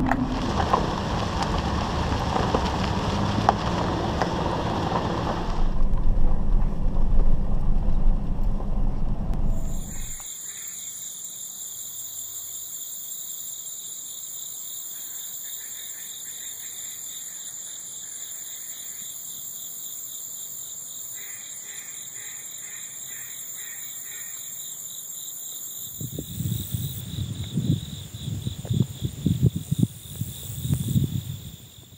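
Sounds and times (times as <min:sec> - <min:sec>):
insects trilling: 0:09.6 - 0:31.9
duck call notes: 0:21.2 - 0:24.4.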